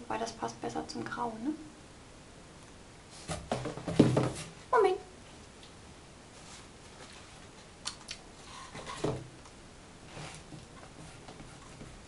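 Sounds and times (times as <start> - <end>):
small rustle: 5.3 - 9.0.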